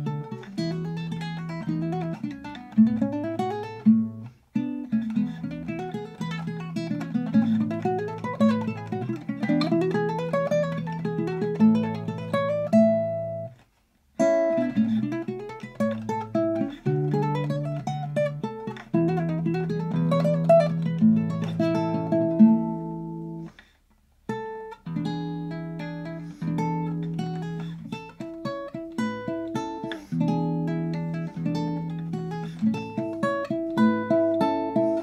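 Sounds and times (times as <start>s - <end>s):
fingerstyle guitar playing: 0.0s - 13.6s, 14.2s - 23.6s, 24.3s - 35.0s.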